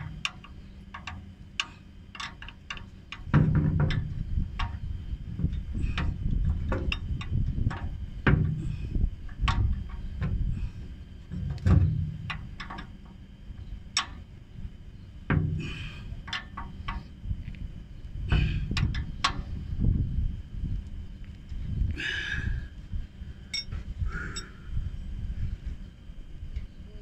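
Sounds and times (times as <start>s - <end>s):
low handling rumble: 0.0s - 27.0s
wrench clinking on metal: 23.5s - 23.7s.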